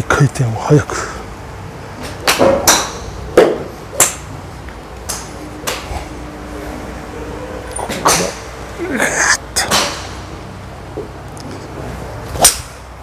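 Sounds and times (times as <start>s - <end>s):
golf clubs striking balls: 2.0s - 6.3s, 7.7s - 8.7s, 9.7s - 13.0s.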